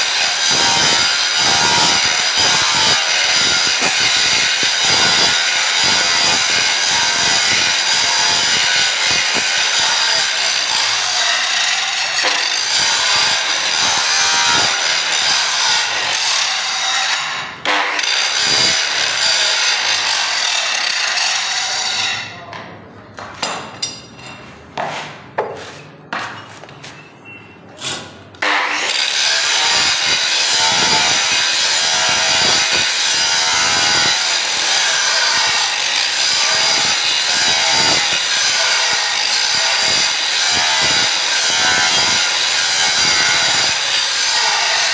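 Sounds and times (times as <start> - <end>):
angle grinder grinding steel: 0.0 - 22.3, 27.8 - 44.9.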